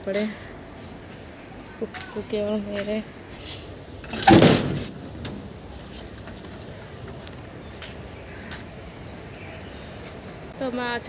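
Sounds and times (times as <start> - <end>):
metal door clanking: 4.0 - 5.6.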